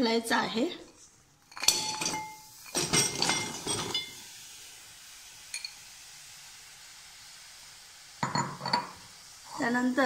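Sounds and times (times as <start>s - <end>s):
faint steady hiss: 0.0s - 10.0s
lumps clattering in a steel pot: 1.5s - 4.2s.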